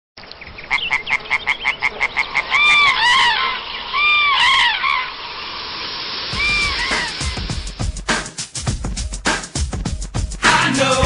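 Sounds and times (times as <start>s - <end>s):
rising and falling animal calls: 0.6s - 7.7s
rapid short animal calls: 0.7s - 5.2s, 6.3s - 7.4s.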